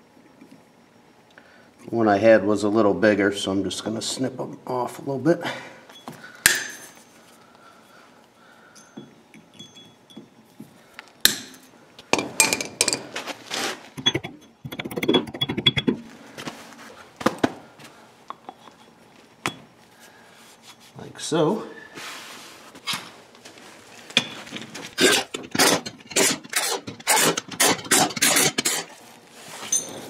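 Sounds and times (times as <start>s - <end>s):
light metallic clinks: 8.7s - 10.6s, 29.7s - 30.0s.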